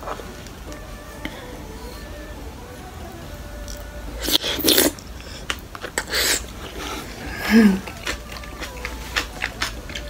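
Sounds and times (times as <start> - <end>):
person humming: 0.0 - 10.0
person chewing food: 3.6 - 10.0
wet mouth clicks: 7.8 - 10.0.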